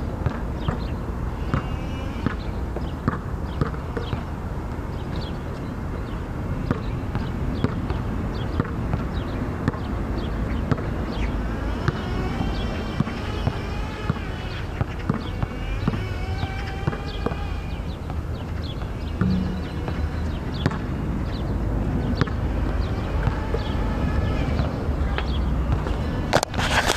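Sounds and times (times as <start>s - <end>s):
basketball bouncing on hard court: 0.2s - 0.9s, 1.5s - 2.4s, 3.0s - 4.3s, 14.8s - 16.1s, 18.8s - 20.8s
high chirping tones: 19.2s - 21.0s
steady low rumble: 19.2s - 21.2s.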